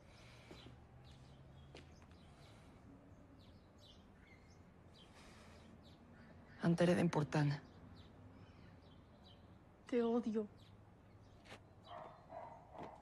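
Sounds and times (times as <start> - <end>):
faint bird chirps: 3.4 - 6.8.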